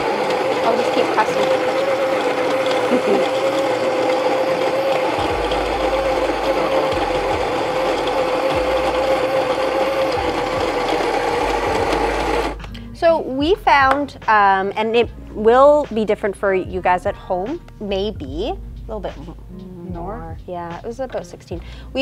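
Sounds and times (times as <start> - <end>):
coffee grinder running: 0.0 - 12.7.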